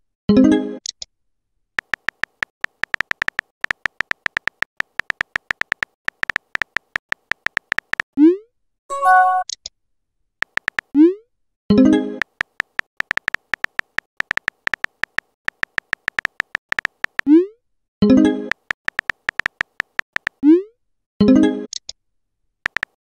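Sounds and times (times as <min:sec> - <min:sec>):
phone keyboard clicks with beeps: 0:01.8 - 0:08.1, 0:10.4 - 0:10.9, 0:12.2 - 0:17.3, 0:18.4 - 0:20.4, 0:22.7 - 0:23.0.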